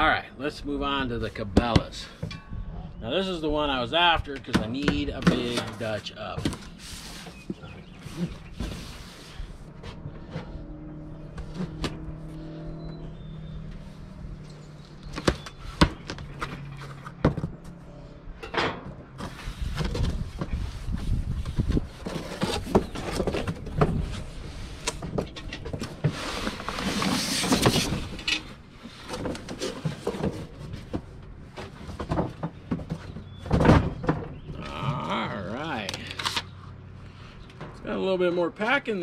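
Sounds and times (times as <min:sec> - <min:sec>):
cardboard and paper rustling: 0:19.2 - 0:34.0.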